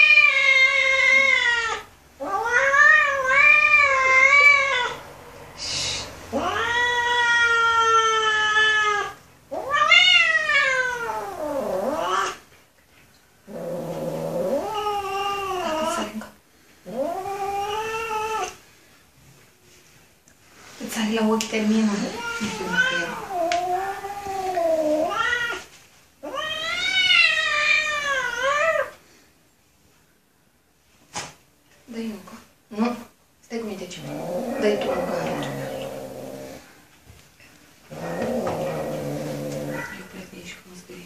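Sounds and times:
kitten meowing: 38.0 - 40.0.

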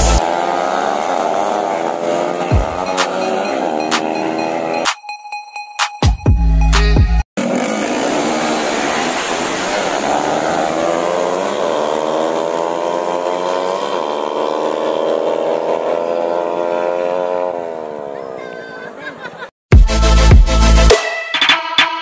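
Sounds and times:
motorcycles revving high: 0.0 - 4.9, 7.4 - 19.0.

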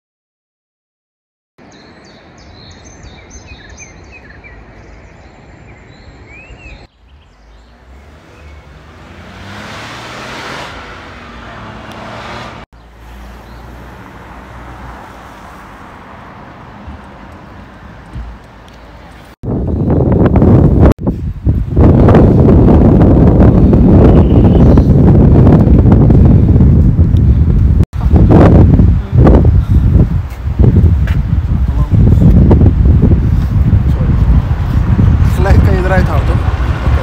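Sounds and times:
small birds chirping: 1.6 - 8.8, 12.8 - 13.9
car passing: 6.4 - 19.4, 33.0 - 37.0
wind rumbling on microphone: 13.2 - 37.0.

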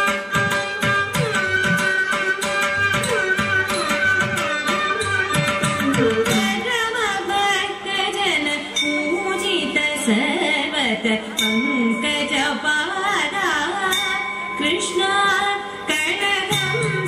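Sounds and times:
instrumental accompaniment: 0.0 - 7.9
woman singing ornamented melody: 5.0 - 17.0.

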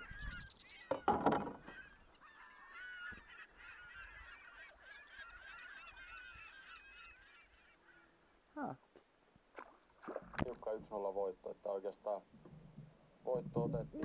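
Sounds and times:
geese honking: 1.6 - 8.2
loud knock or splash: 9.6 - 10.6.

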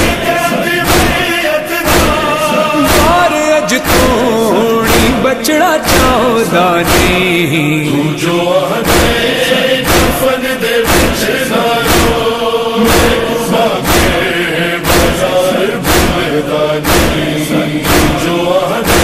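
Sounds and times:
crowd of men chanting in unison: 0.0 - 19.0
hands striking chests: 0.8 - 4.2, 4.9 - 7.3, 9.8 - 11.2, 15.8 - 19.0.

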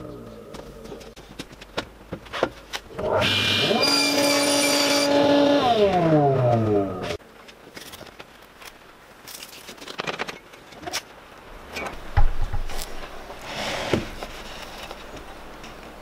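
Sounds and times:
board sliding scrape: 13.4 - 15.1.

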